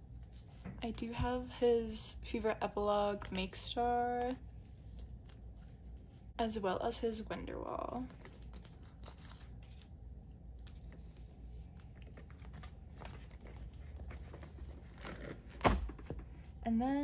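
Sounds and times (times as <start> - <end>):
plastic pages rustling and clicking: 8.1 - 10.0, 10.6 - 16.2.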